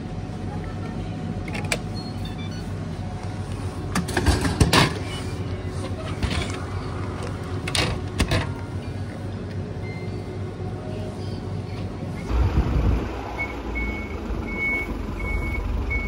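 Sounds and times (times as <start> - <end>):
steady low hum: 5.4 - 16.0.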